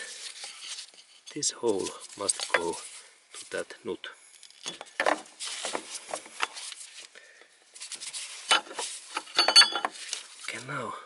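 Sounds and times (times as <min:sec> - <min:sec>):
metal plate scraping and knocking: 0:08.4 - 0:10.0
metallic clatter: 0:08.5 - 0:10.0.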